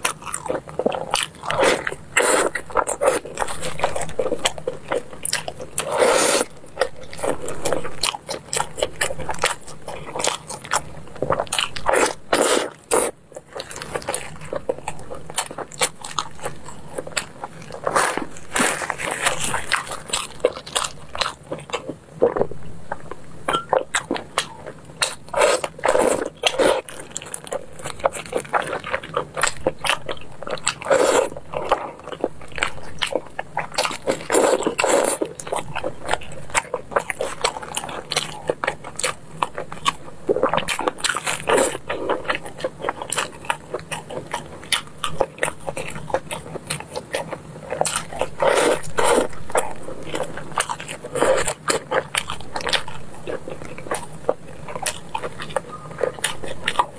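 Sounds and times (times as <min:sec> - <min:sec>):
wet chewing clicks and smacks: 0:00.0 - 0:56.9.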